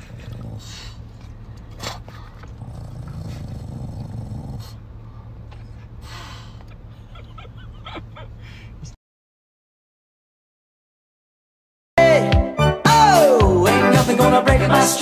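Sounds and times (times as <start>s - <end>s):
dog making throaty vocal sounds: 0.0s - 1.1s, 1.8s - 4.8s
dog noisy breaths: 0.0s - 6.9s.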